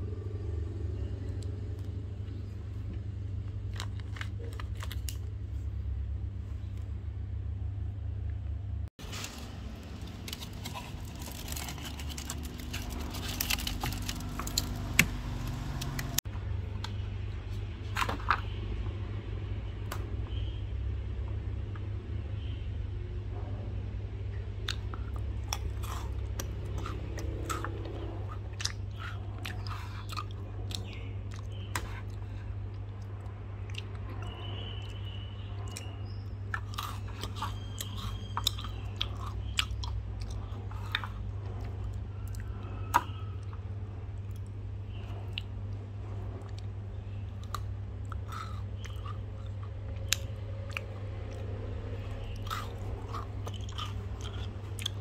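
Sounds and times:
steady low hum: 0.0s - 55.0s
person chewing and crunching: 1.8s - 5.5s, 9.0s - 16.2s, 24.6s - 35.0s, 35.7s - 55.0s.

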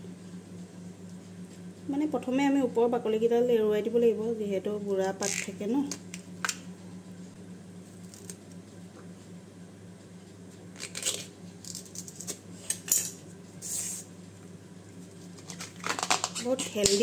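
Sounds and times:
steady low hum: 0.0s - 17.0s
plant sheaths being torn: 7.9s - 8.6s, 10.8s - 12.0s, 15.4s - 17.0s.

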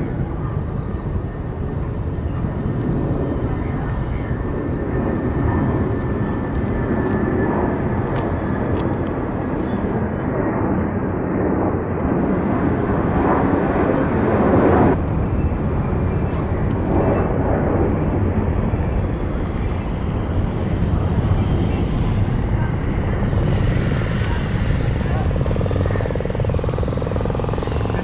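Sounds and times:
jet engine rumble: 0.0s - 28.0s
faint thin whine: 12.1s - 28.0s.

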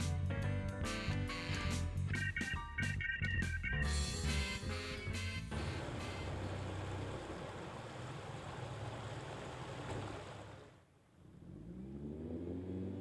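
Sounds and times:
outboard motor revving up: 5.5s - 13.0s
outboard motors droning: 5.5s - 13.0s.

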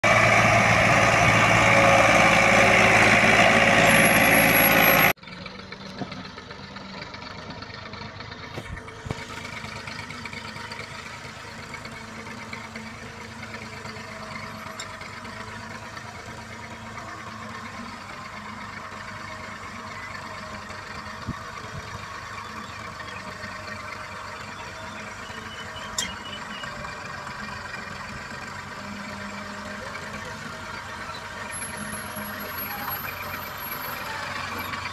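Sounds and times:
tractor diesel engine under load: 0.0s - 34.9s.

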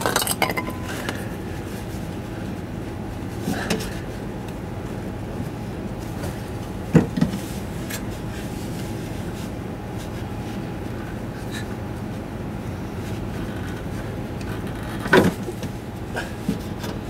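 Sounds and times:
background hum: 0.0s - 17.0s
muffler clunk: 6.3s - 7.4s.

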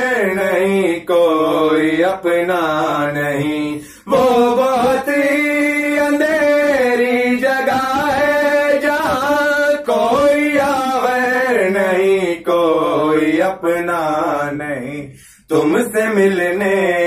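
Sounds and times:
person singing devotional song: 0.0s - 17.0s
singer breathing: 3.7s - 4.1s, 15.1s - 15.5s.

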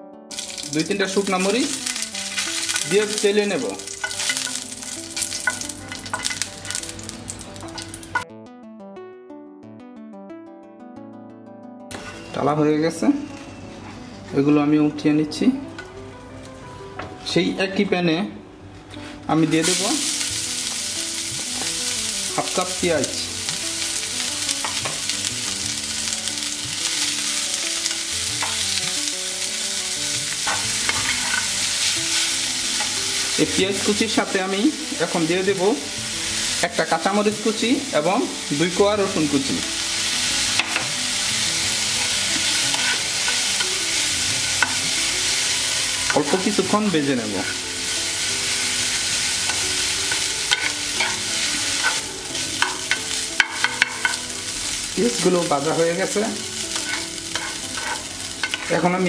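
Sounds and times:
onions sizzling in hot oil: 0.3s - 8.2s, 19.2s - 59.0s
spatula scraping and tapping pan: 4.0s - 4.6s, 30.4s - 33.0s, 40.6s - 40.9s, 42.3s - 43.7s, 49.5s - 54.2s, 56.7s - 58.8s.

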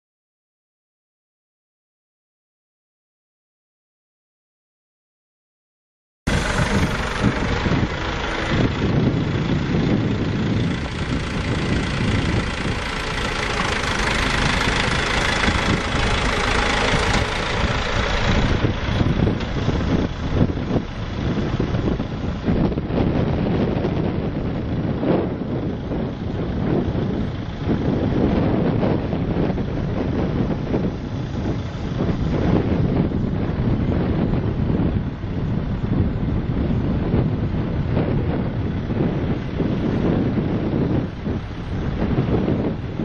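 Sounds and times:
tyres on gravel: 6.3s - 22.1s
forklift engine running: 6.3s - 43.0s.

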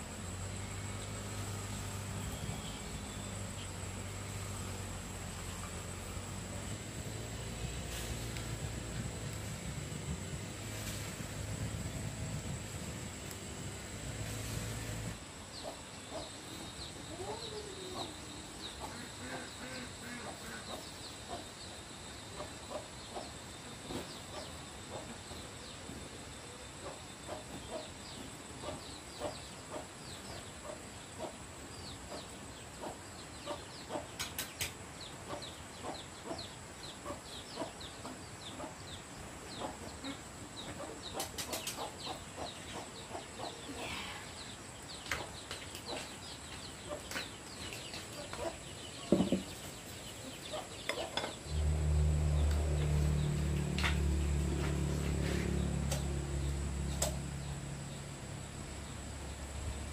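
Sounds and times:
chickens clucking: 18.8s - 21.5s, 32.1s - 38.8s, 39.5s - 44.2s, 45.0s - 56.1s.

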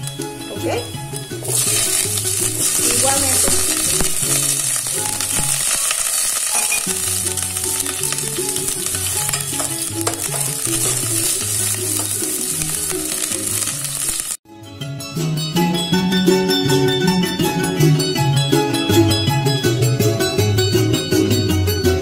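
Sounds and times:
onion and garlic sizzling in oil: 0.0s - 14.4s
background music: 0.0s - 22.0s
spoon stirring in pot: 1.0s - 14.2s.

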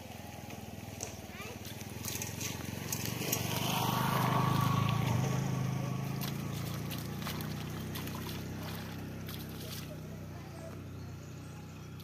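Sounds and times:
water splashing and sloshing: 1.6s - 10.4s.

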